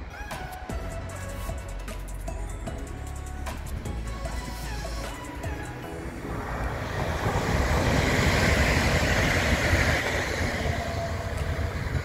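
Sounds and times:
train passing at speed: 3.9s - 12.0s.

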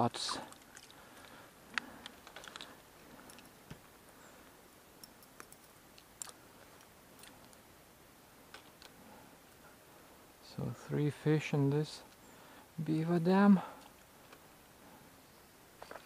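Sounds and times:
faint small clicks and ticks: 0.5s - 3.8s, 5.0s - 7.6s.

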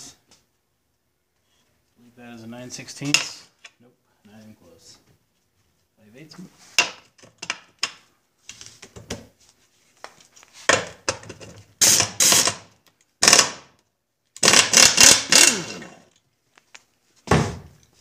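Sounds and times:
impact wrench bursts: 11.8s - 13.7s, 14.4s - 16.0s.

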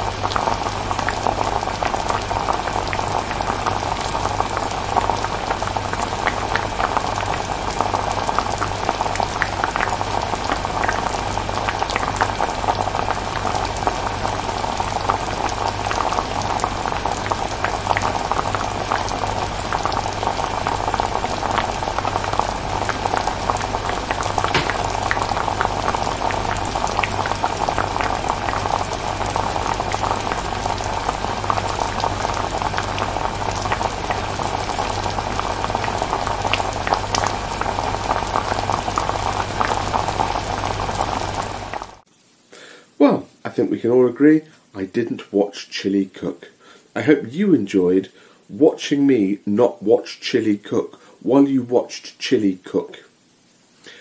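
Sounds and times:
chilli bubbling in a pan: 0.0s - 42.8s.

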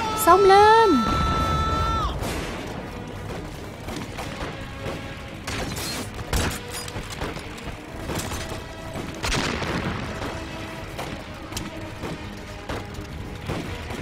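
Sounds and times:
dramatic orchestral music: 0.0s - 14.0s
explosions booming: 1.1s - 5.7s, 9.0s - 10.8s.

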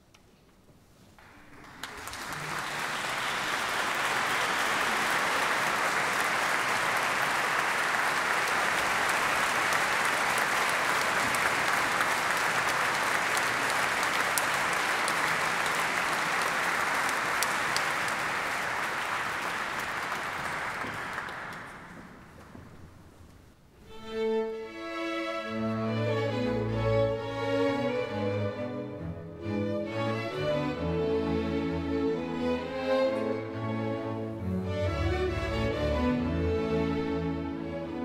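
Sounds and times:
audience applauding: 1.2s - 22.5s.

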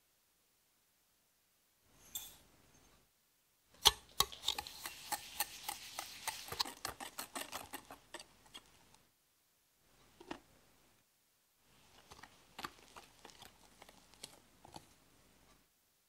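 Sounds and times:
whisk scraping hiss: 3.9s - 8.8s.

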